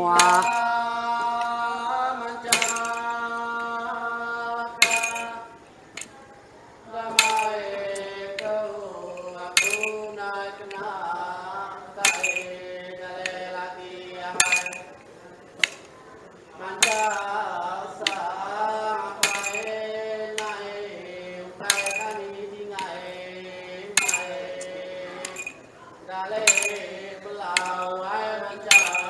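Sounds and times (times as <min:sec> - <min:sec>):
men chanting: 0:00.0 - 0:29.0
metallic jingle: 0:00.1 - 0:00.8, 0:02.5 - 0:03.4, 0:04.7 - 0:06.2, 0:07.1 - 0:10.9, 0:12.0 - 0:12.8, 0:14.4 - 0:15.0, 0:16.8 - 0:18.4, 0:19.2 - 0:20.8, 0:21.6 - 0:22.9, 0:23.9 - 0:25.7, 0:26.4 - 0:29.0
staffs striking floor: 0:00.2 - 0:00.7, 0:02.5 - 0:03.2, 0:04.8 - 0:05.4, 0:07.2 - 0:07.8, 0:09.2 - 0:10.1, 0:12.0 - 0:12.6, 0:14.3 - 0:15.0, 0:15.6 - 0:15.9, 0:16.8 - 0:17.3, 0:18.0 - 0:18.4, 0:19.2 - 0:20.7, 0:21.6 - 0:22.2, 0:23.9 - 0:25.6, 0:26.4 - 0:28.0, 0:28.6 - 0:29.0.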